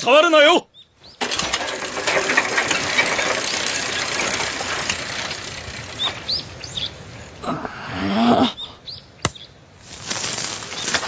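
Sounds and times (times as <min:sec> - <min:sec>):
cicadas buzzing: 0:00.7 - 0:07.4, 0:08.9 - 0:11.0.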